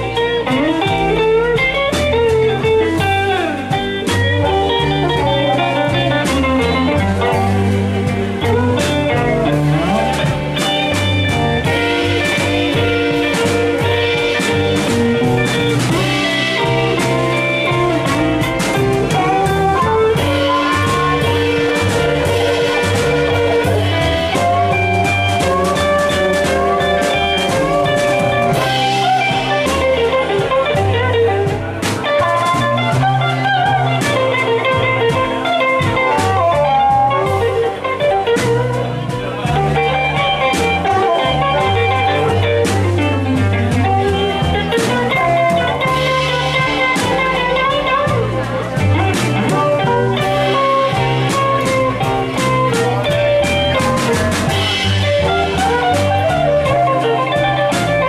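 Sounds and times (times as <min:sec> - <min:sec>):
harmonica solo: 0:00.0 - 0:31.6
drum kit: 0:00.0 - 0:58.0
electric guitar: 0:00.0 - 0:58.0
upright double bass: 0:00.0 - 0:58.0.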